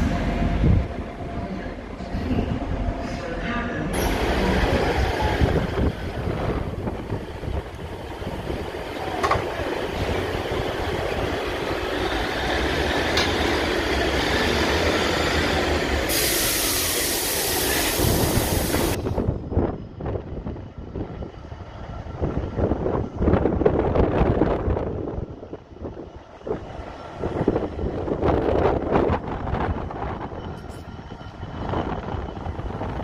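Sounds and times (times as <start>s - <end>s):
diesel train rumble: 0.0s - 33.0s
gusty background sound: 0.0s - 33.0s
rail noise: 0.0s - 33.0s
loud hiss: 16.0s - 19.1s.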